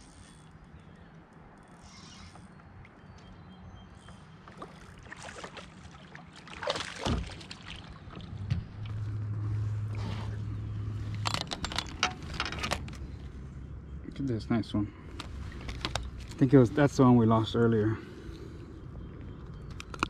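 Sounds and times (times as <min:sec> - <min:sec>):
low hum: 0:07.2 - 0:20.0.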